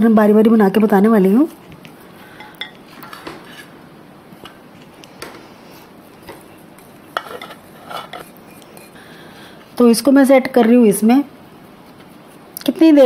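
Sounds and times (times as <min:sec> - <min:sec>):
spatula scraping glass bowl: 0:07.2 - 0:09.0.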